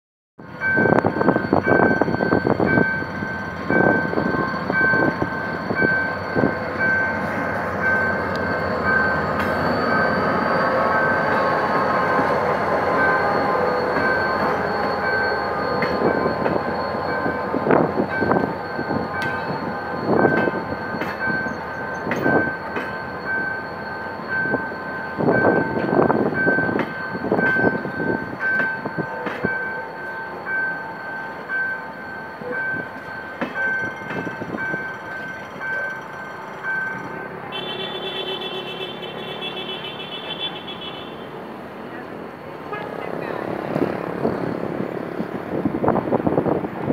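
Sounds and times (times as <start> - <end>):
diesel locomotive rumbling past: 0.4 - 46.9
level crossing warning beep: 0.5 - 41.3
wheel squeal: 1.3 - 12.3
wheels clacking over rail joints: 32.4 - 37.9.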